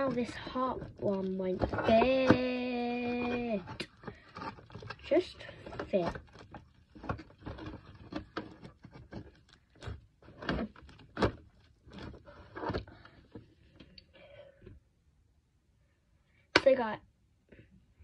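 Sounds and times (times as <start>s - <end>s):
items knocking against plastic box: 0.0s - 12.9s.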